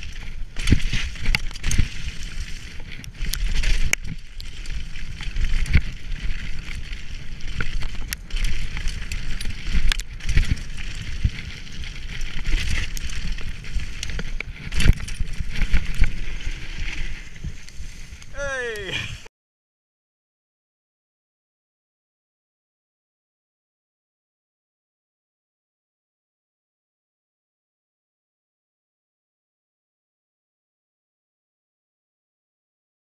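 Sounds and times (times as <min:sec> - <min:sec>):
bike knocks and rattles: 0:00.0 - 0:17.8
bike tyres rumbling on dirt: 0:00.0 - 0:19.3.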